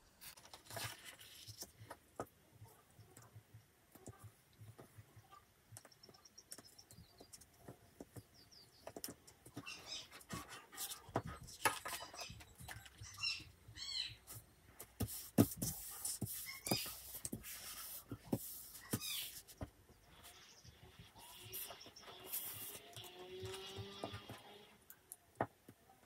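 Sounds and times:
glue stick rubbing on paper: 14.3 - 19.6, 21.3 - 22.9
paper rustling and tapping: 14.8 - 19.8.

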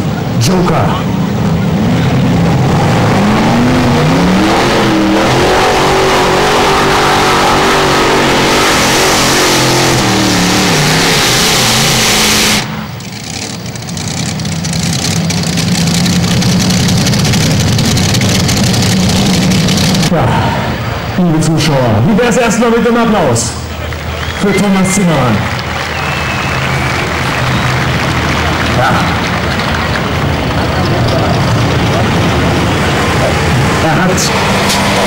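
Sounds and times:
tractor engine at full throttle: 0.0 - 35.0
engine idling: 12.6 - 21.2, 22.9 - 34.3.

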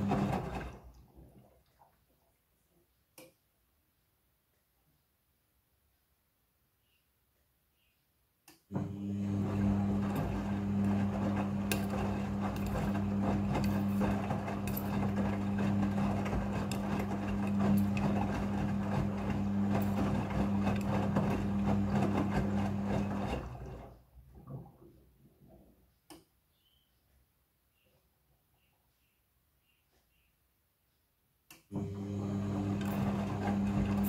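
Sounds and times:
washing machine motor hum: 0.0 - 1.8, 8.7 - 25.7, 31.7 - 34.0
water sloshing: 0.0 - 2.9, 9.4 - 25.7.

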